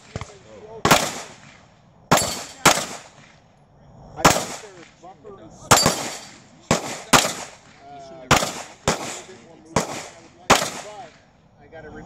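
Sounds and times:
pistol shots with echo: 0.0s - 3.4s, 4.2s - 5.0s, 5.7s - 11.1s.

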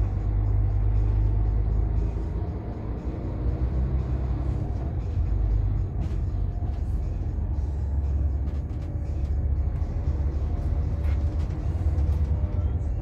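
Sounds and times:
diesel engine drone: 0.0s - 13.0s
body rattles and knocks: 5.8s - 7.0s, 8.3s - 9.4s, 10.9s - 12.7s.

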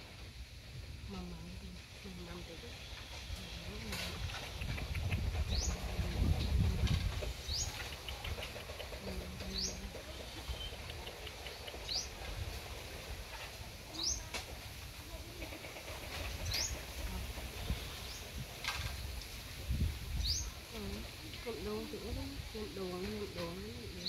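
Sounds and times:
bird calling: 2.4s - 12.4s.

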